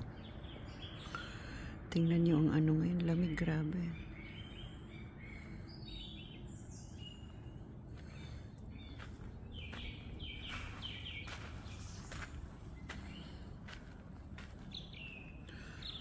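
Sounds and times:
low steady background noise: 0.0s - 16.0s
birds whistling calls: 3.9s - 13.8s.

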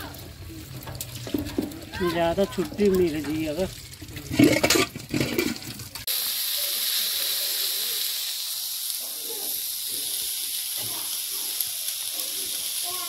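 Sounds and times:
steady hiss: 6.0s - 13.0s
faint voices: 9.0s - 13.0s.

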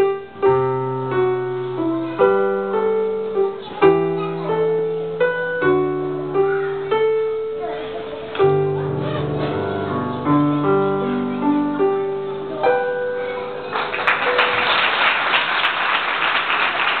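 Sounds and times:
audience applause: 13.6s - 17.0s.

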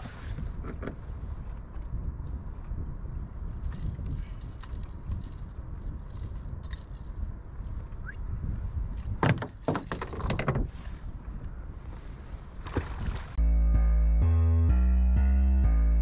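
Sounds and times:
wind rumbling on microphone: 0.0s - 13.4s
rattling and knocking: 9.0s - 10.8s.

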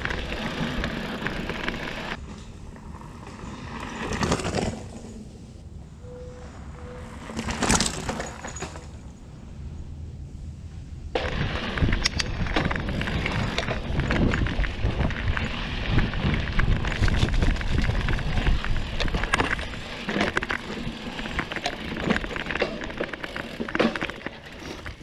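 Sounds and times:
bike clicks and rattles: 0.0s - 5.1s, 7.2s - 9.1s, 11.2s - 25.0s
bike tyres on dirt trail: 0.0s - 9.8s, 11.1s - 25.0s
steady low rumble: 9.0s - 22.6s.

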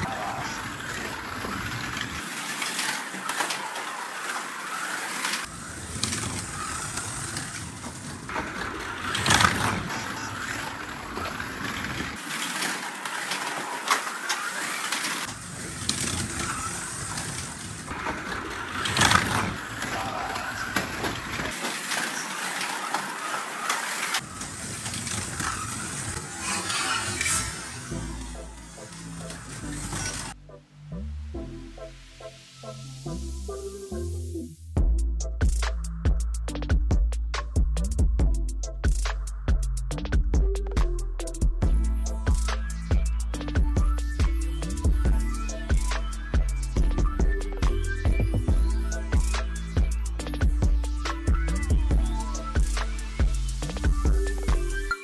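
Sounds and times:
wheels rattling on plastic track: 0.0s - 30.4s
slot car motors whining: 0.0s - 34.1s, 41.6s - 55.0s.

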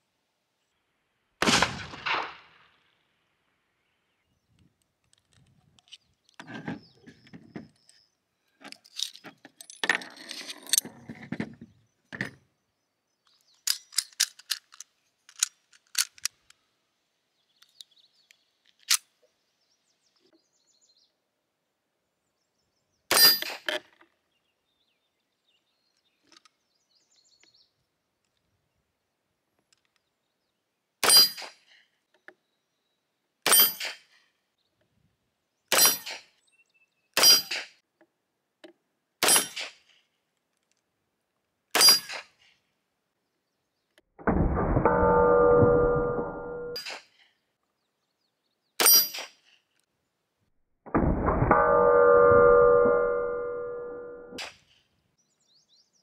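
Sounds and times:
pistol gunshots: 1.4s - 2.6s
pistol action clicking and rattling: 13.5s - 16.6s, 18.6s - 19.1s.

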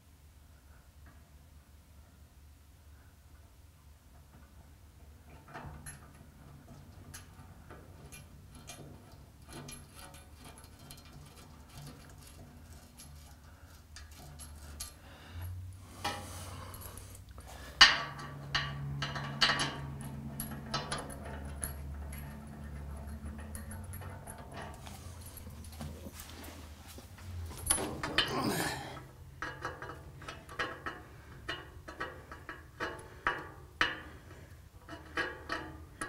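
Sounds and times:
scuffing rustle: 24.8s - 27.7s.

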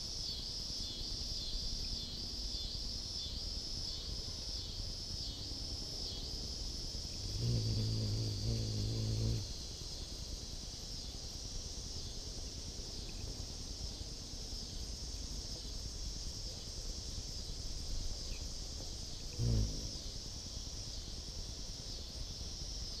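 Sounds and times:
insects chorus: 0.0s - 23.0s
hummingbird wings humming: 4.6s - 22.8s.

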